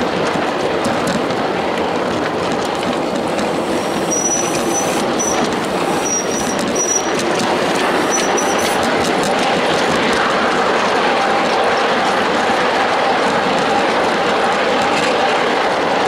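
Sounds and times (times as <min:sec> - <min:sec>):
train wheels rolling on rails: 0:00.0 - 0:16.0
wheels squealing: 0:03.2 - 0:09.4.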